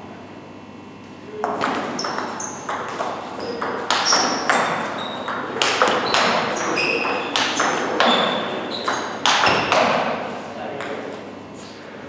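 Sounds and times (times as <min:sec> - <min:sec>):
table tennis ball clicks: 0:01.4 - 0:09.9.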